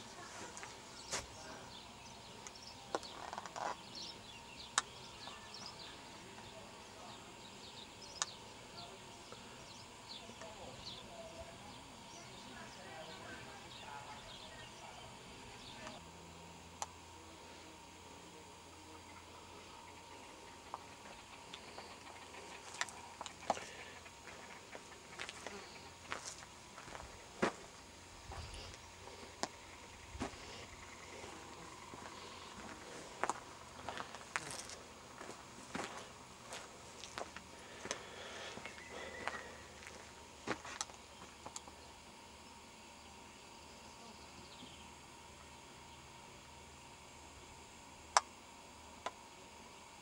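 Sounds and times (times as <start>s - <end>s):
small birds chirping: 0.0s - 16.0s, 17.6s - 46.7s
footsteps on dry grass and twigs: 0.2s - 1.4s, 21.6s - 41.5s.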